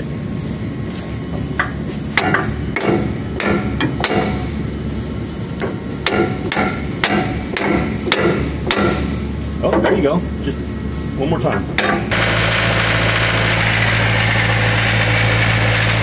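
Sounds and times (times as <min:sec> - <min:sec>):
sledgehammer striking steel: 0:06.0 - 0:09.2.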